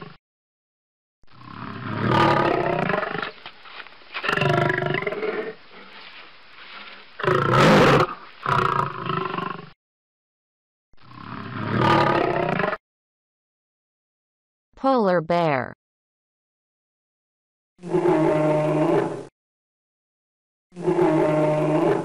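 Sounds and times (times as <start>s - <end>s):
lion roaring: 1.3s - 3.3s, 7.2s - 9.7s, 11.1s - 12.8s, 17.8s - 19.3s, 20.8s - 22.0s.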